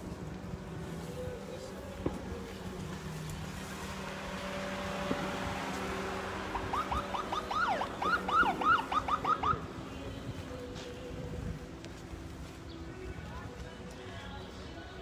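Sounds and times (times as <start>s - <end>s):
siren whooping: 6.5s - 9.6s.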